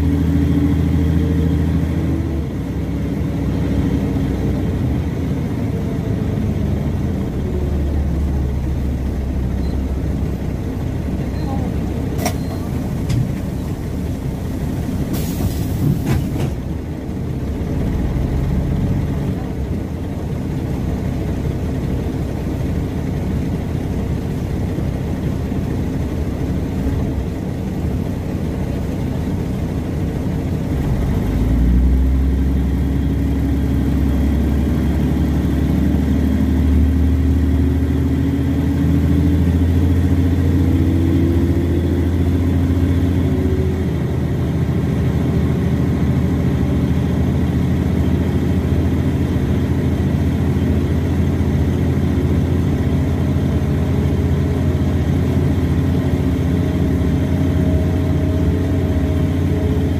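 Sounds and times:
bus diesel engine running: 0:00.0 - 0:59.9.

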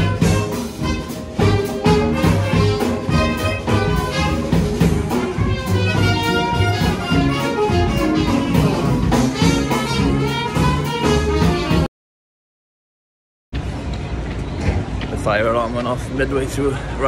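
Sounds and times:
jazz band playing: 0:00.0 - 0:11.9.

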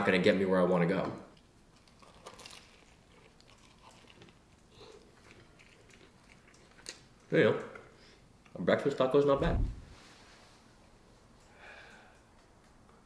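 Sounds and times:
small crackles: 0:01.4 - 0:07.4
faint biting and chewing: 0:01.4 - 0:08.0.

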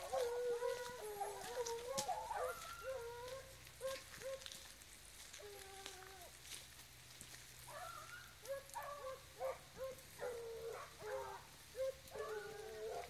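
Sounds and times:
hunting dogs baying: 0:00.0 - 0:04.6, 0:07.7 - 0:13.0.

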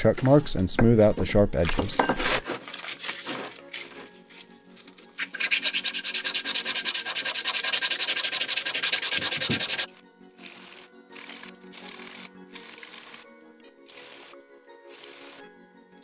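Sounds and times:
metal cube sanding on sandpaper: 0:05.2 - 0:13.2.

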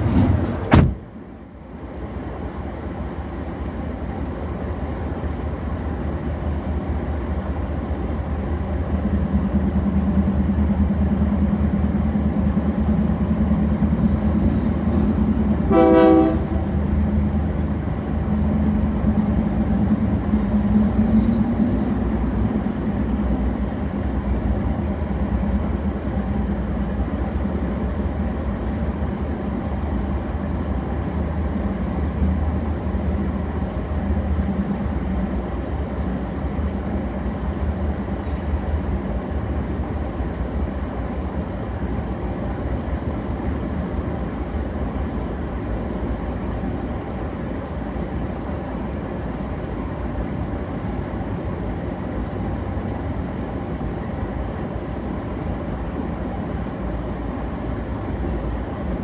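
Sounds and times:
freight train rumbling past: 0:00.0 - 0:59.0
train horn: 0:15.7 - 0:16.8.

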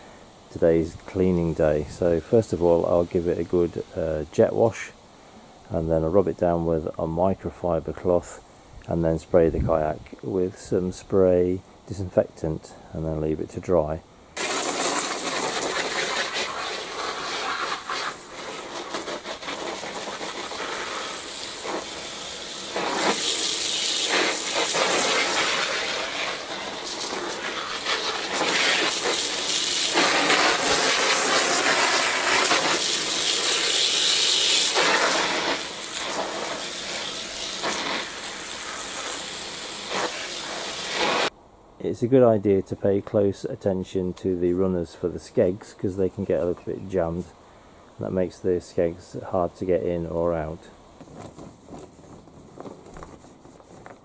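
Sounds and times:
hose spray hissing: 0:14.4 - 0:41.3
water spattering on plastic: 0:14.4 - 0:41.3.

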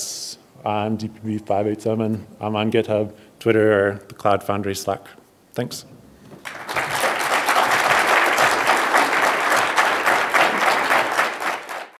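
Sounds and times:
audience applauding: 0:06.4 - 0:12.0.

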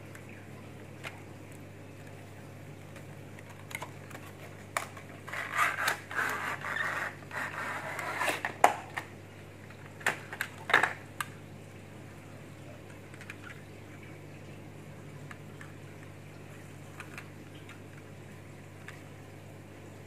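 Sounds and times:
plastic packaging clicks and crinkles: 0:02.8 - 0:11.4, 0:12.8 - 0:13.6, 0:16.9 - 0:18.1, 0:18.7 - 0:19.1
cardboard sleeve scraping: 0:05.2 - 0:08.6.

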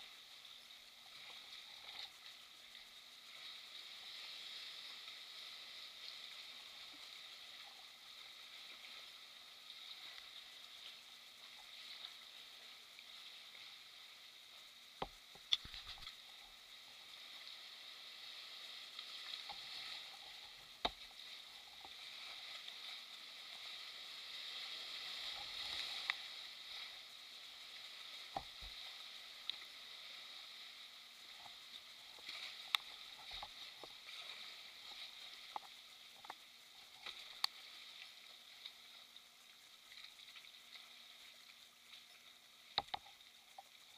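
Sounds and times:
sea water sloshing and fizzing: 0:15.2 - 0:39.1.

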